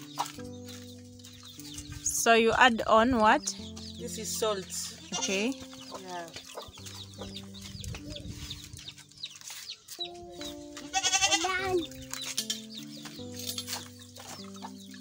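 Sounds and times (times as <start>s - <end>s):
soft background music: 0.0s - 15.0s
chickens clucking: 3.6s - 15.0s.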